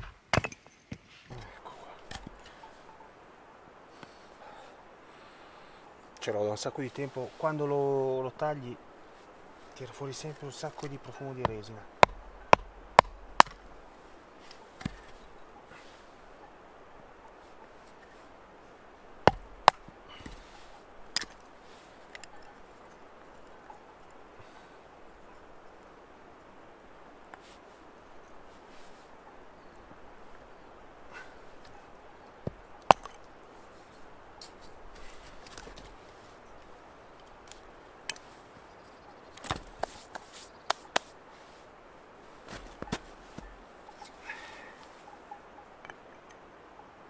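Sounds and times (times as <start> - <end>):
knife chopping wood: 10.8 - 13.7, 14.8 - 15.2, 19.2 - 20.4, 32.4 - 33.2.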